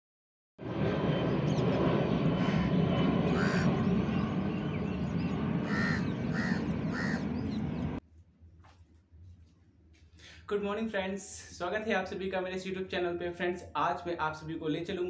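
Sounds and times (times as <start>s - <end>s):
jet airliner rumbling overhead: 0.6s - 8.0s
crows cawing: 2.4s - 3.9s, 5.5s - 7.6s.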